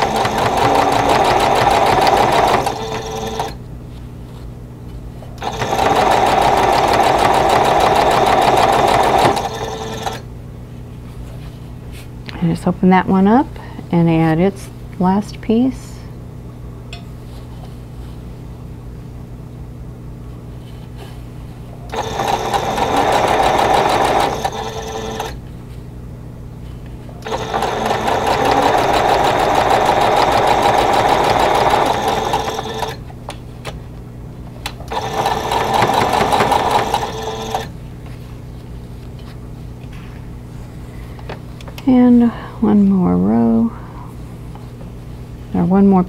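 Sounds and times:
sewing machine stitching: 0.0s - 3.6s, 5.4s - 10.2s, 21.9s - 25.4s, 27.2s - 33.0s, 34.9s - 37.7s.

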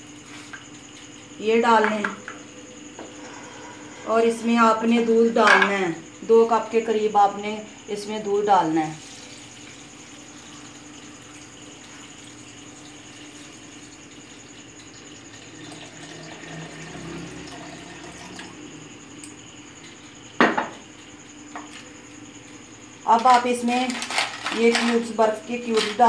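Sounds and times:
milk pouring into a glass jar: 15.3s - 18.5s.

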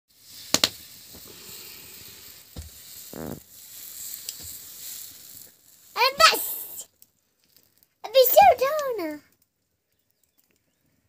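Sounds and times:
batter sizzling on griddle: 0.1s - 8.6s.

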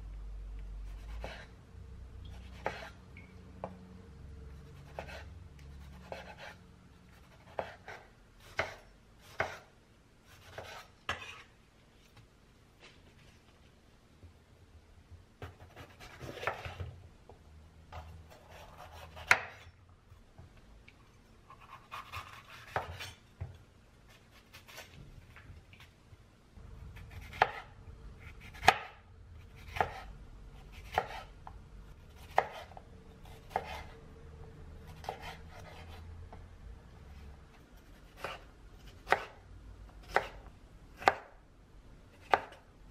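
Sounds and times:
knife cutting on wooden board: 0.9s - 1.5s, 2.5s - 3.0s, 4.8s - 6.6s, 7.2s - 9.7s, 10.3s - 11.5s, 15.4s - 16.9s, 18.0s - 19.6s, 21.5s - 23.2s, 27.0s - 30.1s, 30.7s - 31.3s, 32.2s - 34.0s, 35.0s - 36.0s, 37.8s - 39.4s, 40.0s - 40.4s.

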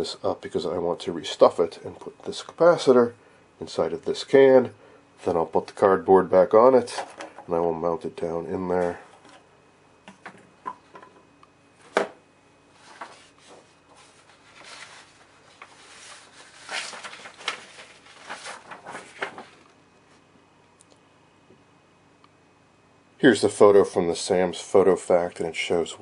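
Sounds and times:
rustling: 12.8s - 20.2s.

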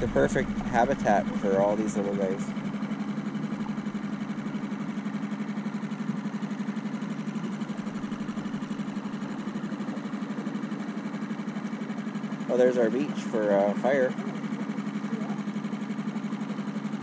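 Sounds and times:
outboard motor puttering: 0.0s - 17.0s.

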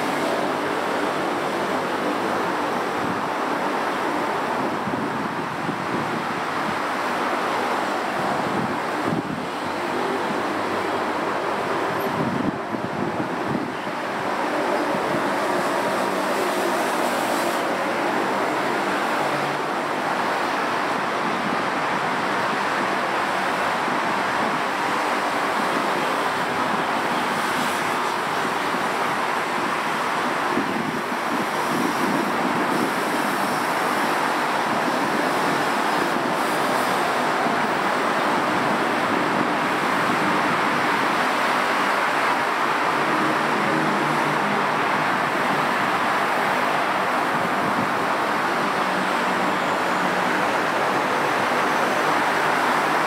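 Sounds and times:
busy road traffic: 0.0s - 53.0s.

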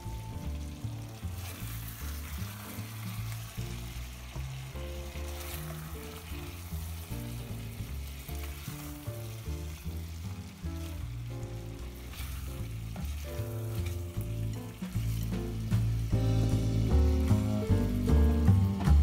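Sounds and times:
background music: 0.0s - 19.0s
food sizzling in a wok: 0.0s - 19.0s
wooden spatula stirring: 0.4s - 9.4s.

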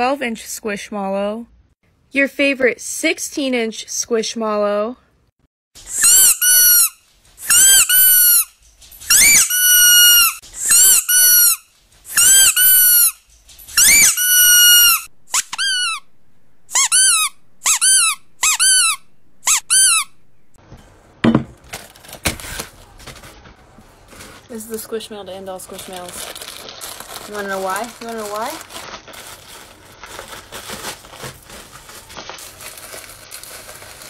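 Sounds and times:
squeaky toy squeaks: 5.9s - 16.1s, 16.7s - 20.2s
brief rustle: 8.4s - 9.2s, 13.1s - 13.9s.

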